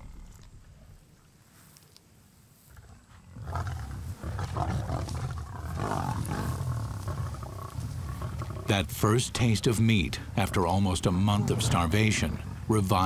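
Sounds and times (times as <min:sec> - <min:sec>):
lionesses growling: 0:02.7 - 0:13.0.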